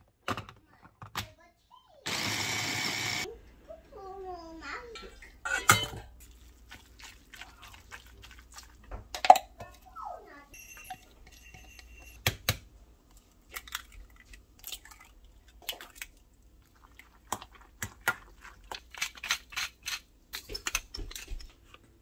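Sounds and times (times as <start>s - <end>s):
utensils clicking on dishes: 18.8s - 21.6s.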